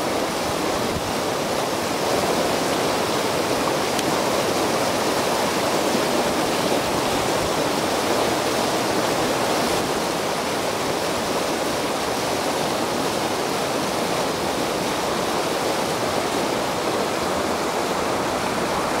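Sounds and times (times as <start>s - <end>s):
water rushing over rocks: 0.0s - 19.0s.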